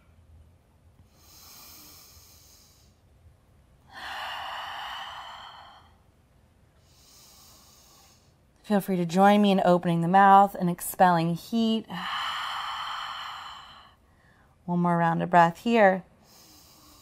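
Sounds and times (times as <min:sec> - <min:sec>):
woman breathing deeply: 0:01.0 - 0:03.1, 0:03.9 - 0:06.2, 0:06.8 - 0:08.5, 0:11.9 - 0:14.6, 0:16.1 - 0:17.0.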